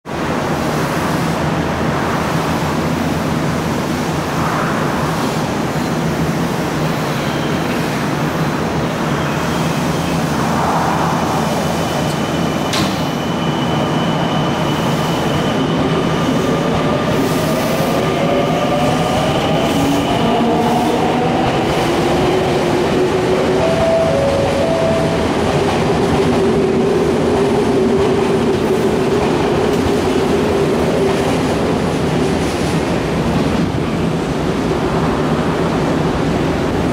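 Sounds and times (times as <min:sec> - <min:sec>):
electric train humming: 0:16.7 - 0:32.1.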